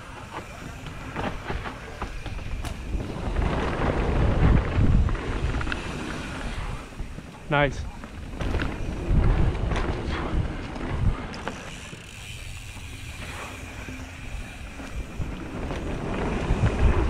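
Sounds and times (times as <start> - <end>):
bike rolling over dirt trail: 0.0 - 17.0
bike knocks and rattles: 0.1 - 7.4, 8.0 - 17.0
wind buffeting microphone: 0.3 - 17.0.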